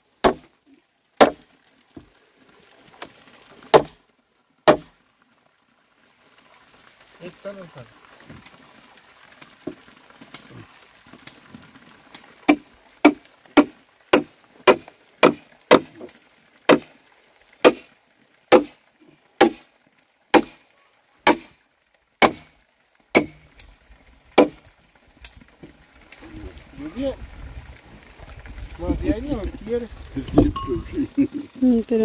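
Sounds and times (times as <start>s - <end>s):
hand tool striking wood: 0.2s - 0.5s, 1.2s - 1.4s, 3.7s - 4.0s, 4.7s - 4.9s, 12.5s - 16.1s, 16.7s - 16.9s, 17.6s - 17.8s, 18.5s - 18.7s, 19.4s - 19.6s, 20.4s - 20.6s, 21.3s - 21.5s, 22.2s - 22.5s, 23.2s - 23.4s, 24.4s - 24.6s.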